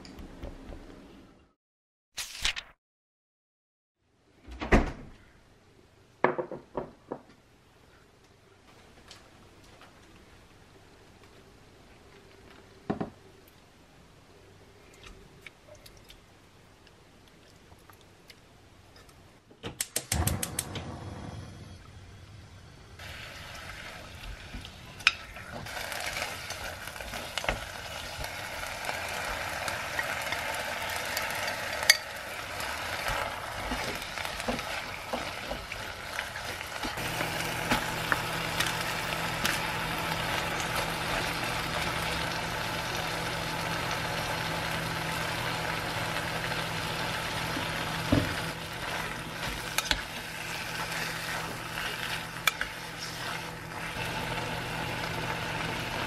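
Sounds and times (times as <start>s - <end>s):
low hum: 20.1s - 23.7s
food sizzling in a pot: 23.0s - 56.0s.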